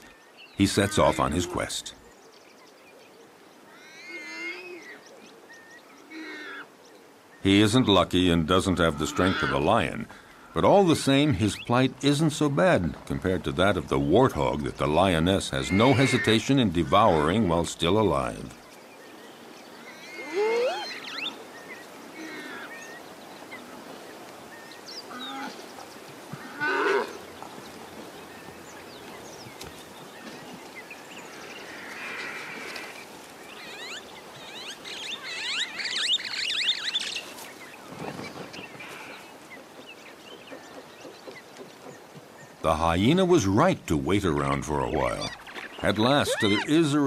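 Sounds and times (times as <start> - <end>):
wild animal cries: 3.8 - 4.9, 6.1 - 6.7, 8.9 - 9.6, 19.8 - 21.2, 46.1 - 46.8.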